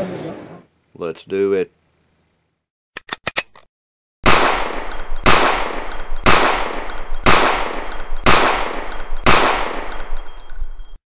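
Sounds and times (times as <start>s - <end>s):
gunshots with ringing decay: 4.2s - 10.3s.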